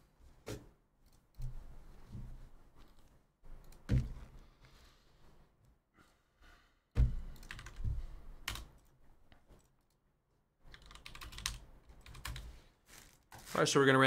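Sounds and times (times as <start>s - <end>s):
computer keyboard typing: 7.3s - 7.8s, 8.4s - 9.0s, 10.7s - 12.5s.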